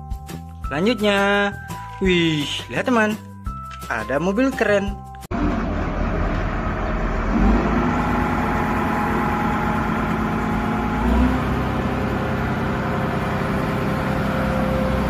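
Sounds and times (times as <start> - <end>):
diesel engine running: 5.3 - 15.0.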